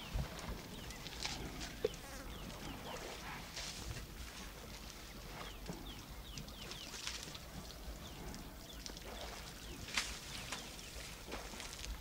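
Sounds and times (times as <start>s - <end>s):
bird chirping: 0.0s - 3.4s, 5.0s - 11.2s
water splashing and squelching: 0.0s - 12.0s.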